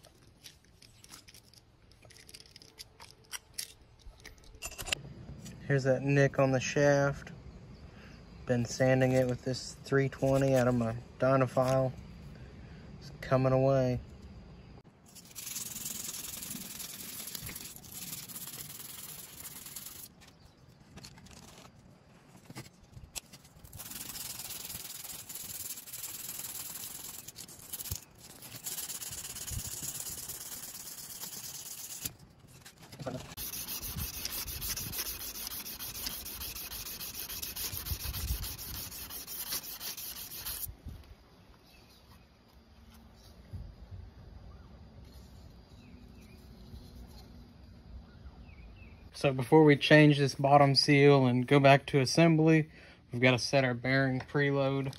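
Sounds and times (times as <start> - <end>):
abrasive belt sanding metal: 15.1 - 20.1, 23.7 - 32.1, 33.3 - 40.7.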